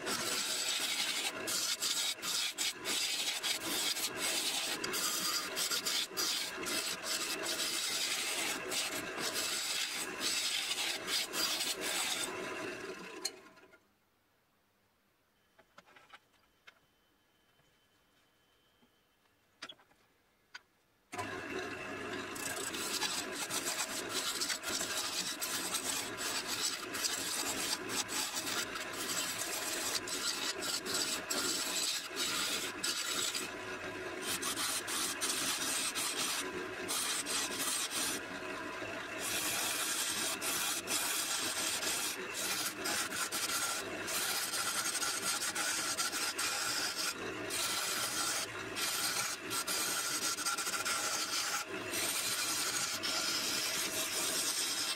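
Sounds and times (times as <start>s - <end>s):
lathe tool scraping wood: 0.0s - 13.5s, 21.2s - 54.9s.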